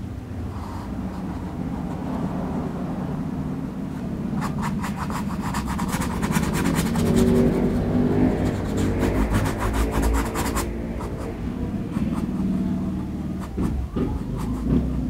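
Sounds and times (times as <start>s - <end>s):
steady low rumble: 0.0s - 15.0s
brush scrubbing on canvas: 4.4s - 12.5s.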